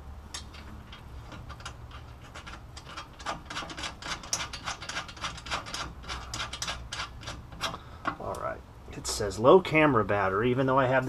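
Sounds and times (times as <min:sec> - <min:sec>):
low steady hum: 0:00.0 - 0:11.0
metallic clicks of nuts threading: 0:00.3 - 0:08.4.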